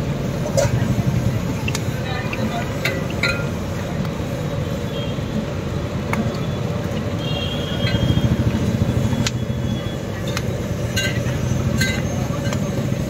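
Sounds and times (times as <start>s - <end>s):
low rumble of street noise: 0.0s - 13.0s
chillies frying in oil: 0.1s - 13.0s.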